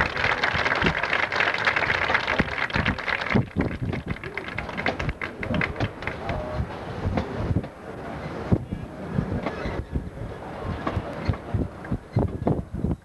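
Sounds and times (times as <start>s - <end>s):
crowd applauding and cheering: 0.0s - 6.5s.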